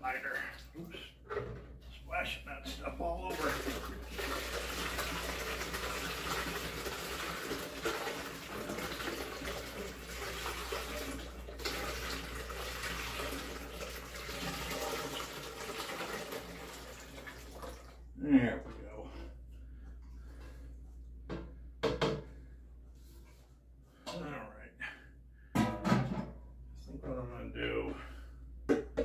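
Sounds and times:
fruit mash pouring through funnel: 3.3 - 17.8.

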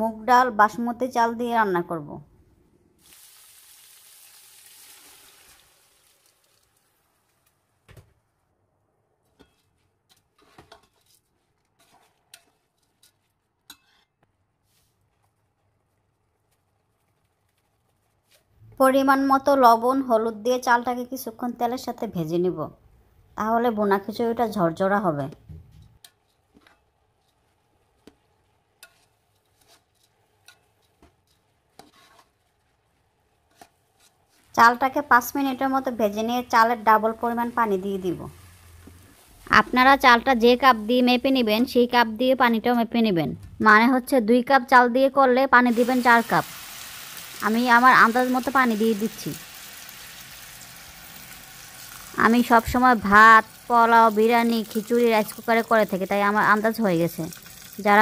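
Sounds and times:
onions sizzling in oil: 3.0 - 7.1, 33.5 - 41.8, 45.6 - 58.0
metal spatula scraping pot: 9.2 - 14.2, 25.7 - 34.5.

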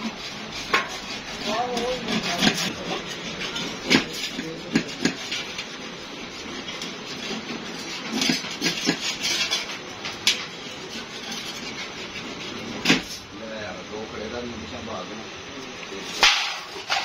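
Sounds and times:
metal sheet clattering: 16.1 - 17.0.

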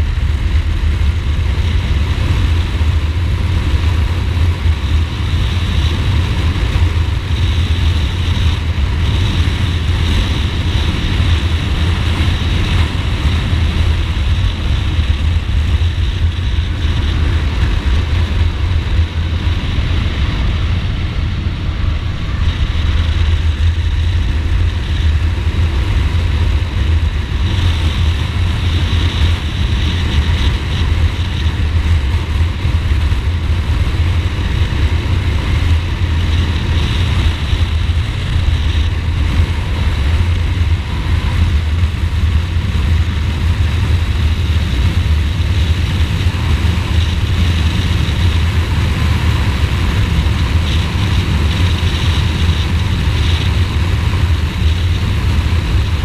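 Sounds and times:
motorcycle engine rumble: 0.0 - 56.0.

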